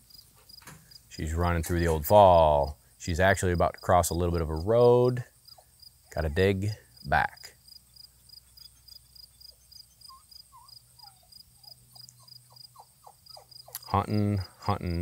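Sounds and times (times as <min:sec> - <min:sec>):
crickets chirping: 0:00.0 - 0:15.0
man calling out: 0:01.2 - 0:05.3, 0:06.1 - 0:07.5, 0:13.7 - 0:15.0.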